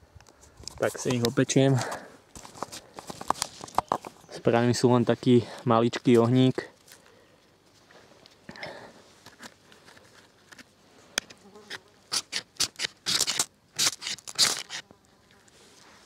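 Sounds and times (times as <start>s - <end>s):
knife scraping ferro rod: 11.7s - 14.8s.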